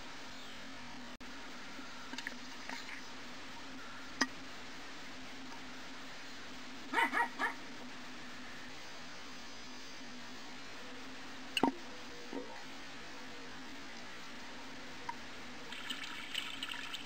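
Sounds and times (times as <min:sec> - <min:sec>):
steady low hum: 0:00.0 - 0:17.0
small dog barking: 0:06.9 - 0:07.6.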